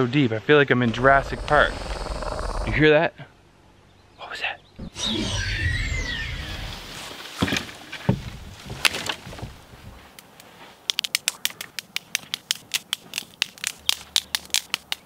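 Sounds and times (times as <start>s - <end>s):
knife shaving wood: 11.0s - 15.0s.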